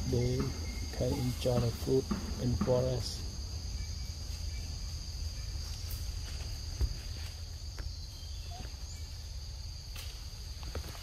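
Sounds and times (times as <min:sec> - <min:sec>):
insect chorus buzzing: 0:00.0 - 0:11.0.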